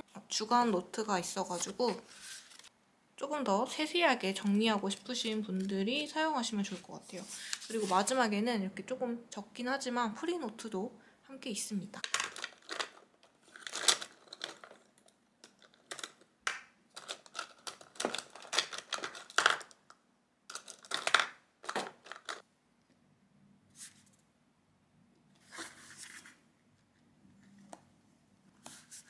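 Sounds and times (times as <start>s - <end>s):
plastic pens clattering: 12.0s - 22.4s.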